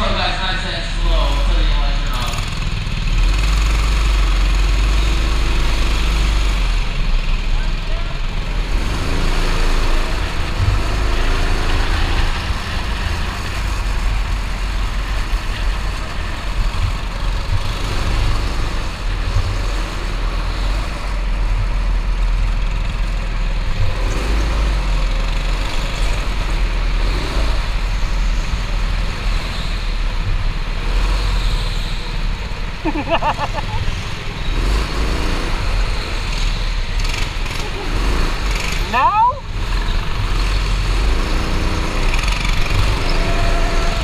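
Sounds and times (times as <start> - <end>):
go-kart engine running: 0.0 - 44.0.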